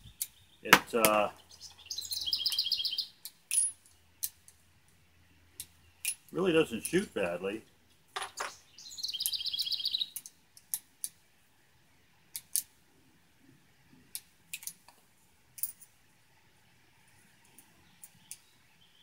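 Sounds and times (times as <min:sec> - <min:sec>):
bird chirping: 0:00.0 - 0:04.4, 0:05.1 - 0:10.3, 0:17.4 - 0:19.0.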